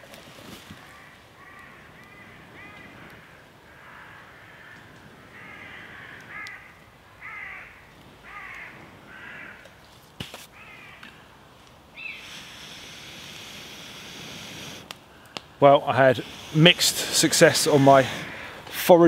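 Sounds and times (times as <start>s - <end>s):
crow cawing: 0.8s - 9.8s, 10.6s - 11.3s, 16.2s - 18.8s
steady high hiss: 5.4s - 19.0s.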